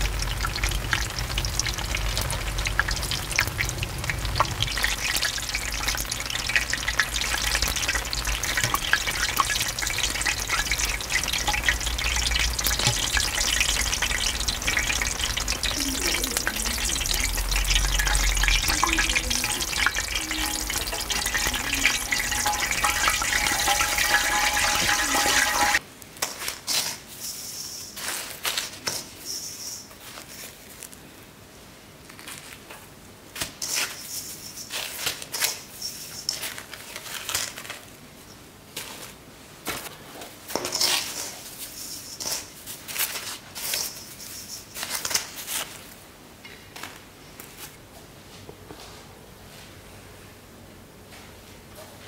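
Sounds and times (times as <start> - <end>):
dough sizzling in hot oil: 0.0 - 25.8
rustles and clicks from a bowl: 0.0 - 31.0, 32.0 - 38.0, 38.7 - 49.8.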